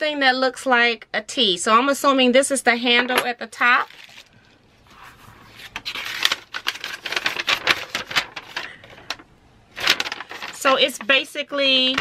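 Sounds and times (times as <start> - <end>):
paper rustling and crinkling: 3.8 - 11.2.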